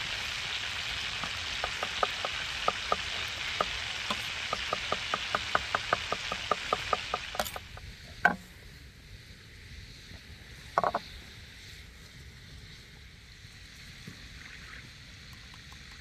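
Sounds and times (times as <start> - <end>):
sausages sizzling in a pan: 0.0 - 8.2
fat popping and crackling: 0.0 - 8.4.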